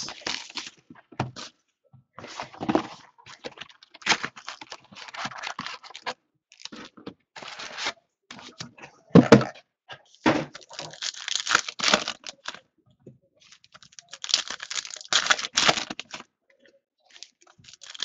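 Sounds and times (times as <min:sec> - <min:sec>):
card packs scraping and rustling: 0:02.2 - 0:08.6, 0:10.6 - 0:12.6, 0:13.4 - 0:16.2, 0:17.1 - 0:18.0.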